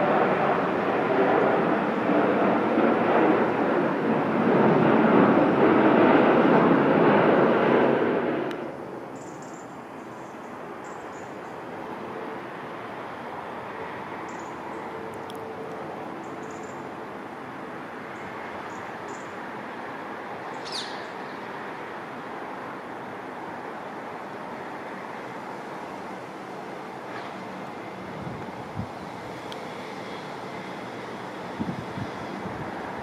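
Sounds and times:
small birds chirping: 9.2 - 11.5, 16.2 - 16.8, 20.5 - 21.4
airport background noise: 21.1 - 33.0.

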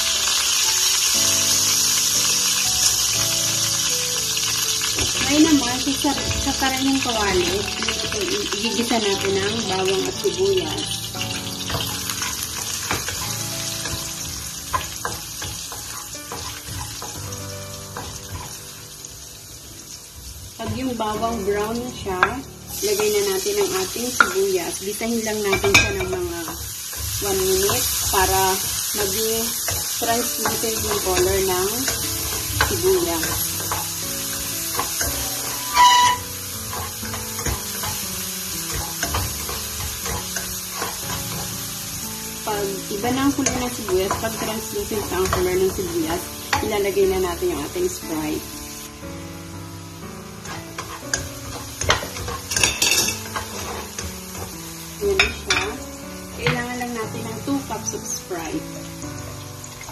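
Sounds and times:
garlic sizzling in oil: 0.0 - 59.9
spatula scraping and knocking pan: 11.6 - 18.8, 23.0 - 24.5, 25.4 - 41.7, 43.0 - 47.0, 50.4 - 55.8.

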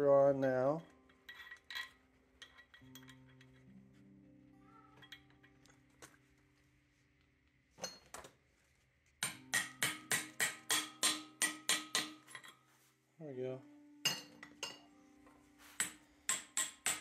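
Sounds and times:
faint background music: 0.0 - 17.0
metal parts clinking: 1.1 - 3.7
hammer striking metal pipe: 9.2 - 12.6, 14.0 - 14.9, 15.8 - 17.0.

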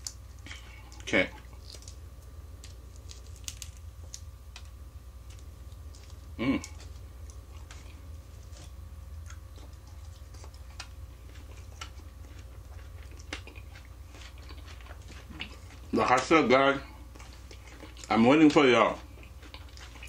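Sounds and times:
steady low hum: 0.0 - 20.0
mouth noises: 6.4 - 6.8.

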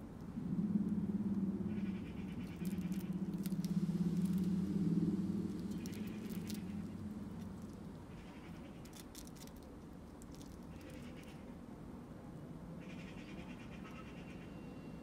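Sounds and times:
squirrel nibbling and licking: 2.4 - 11.4.

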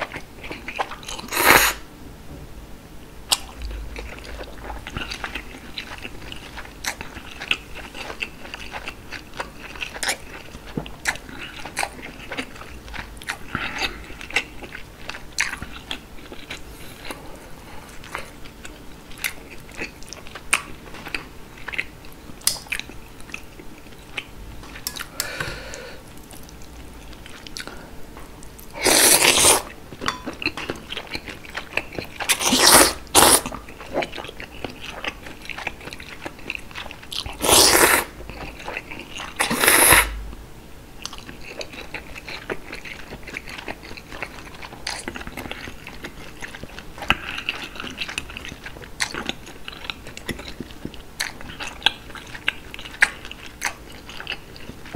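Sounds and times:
wet chewing: 3.3 - 17.2, 28.4 - 40.0, 41.0 - 54.9
slurping noodles: 28.8 - 29.7, 32.3 - 33.5, 37.4 - 38.1, 39.4 - 40.1.

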